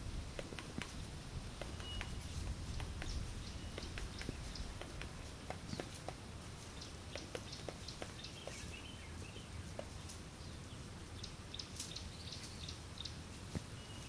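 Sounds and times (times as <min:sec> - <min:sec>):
steady low rumble: 0:00.0 - 0:01.6
faint bird chirps: 0:00.8 - 0:06.0, 0:10.4 - 0:14.0.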